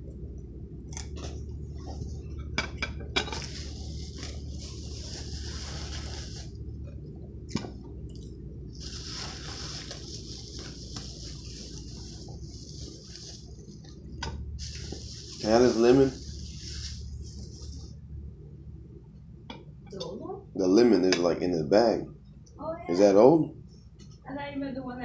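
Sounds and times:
rustling: 3.3s - 6.8s, 8.7s - 18.0s
plastic bag crinkling: 3.5s - 6.6s, 8.7s - 13.8s.

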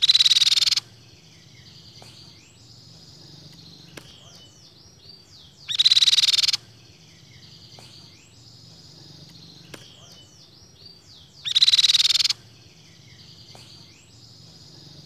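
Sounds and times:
bird rapid high trill: 0.0s - 0.9s, 5.6s - 6.7s, 11.4s - 12.4s
bird chirps and gliding whistles: 0.0s - 15.0s.

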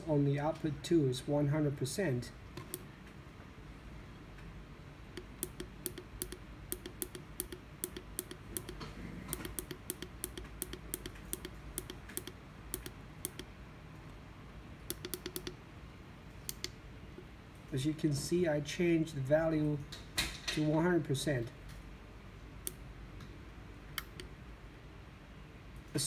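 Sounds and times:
push buttons clicking: 2.6s - 2.8s, 5.2s - 13.5s, 14.9s - 15.6s, 16.5s - 16.8s, 24.0s - 24.3s.

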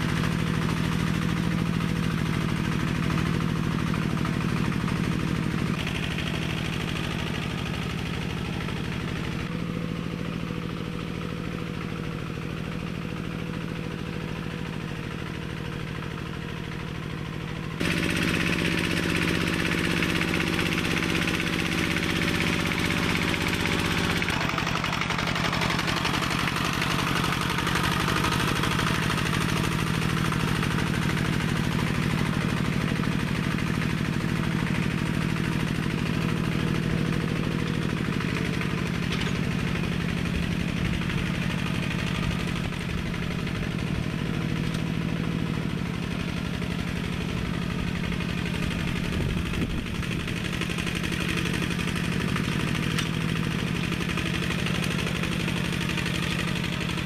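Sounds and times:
small tractor engine running: 0.0s - 57.0s.

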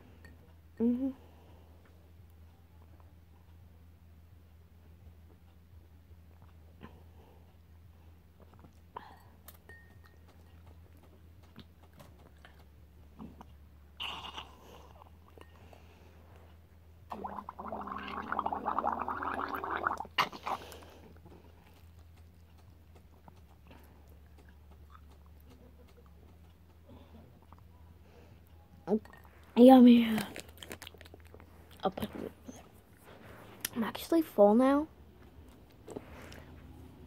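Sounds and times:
gurgling slurps through a straw: 17.1s - 20.6s.

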